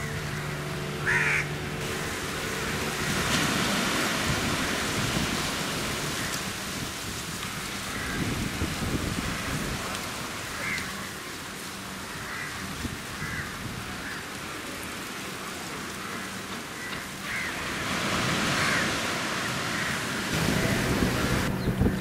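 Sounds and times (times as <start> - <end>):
small waves washing onto beach: 0.0 - 21.6
crow cawing: 1.0 - 1.5, 7.5 - 8.3, 10.5 - 11.1, 12.0 - 14.2, 16.0 - 17.6, 18.4 - 20.7.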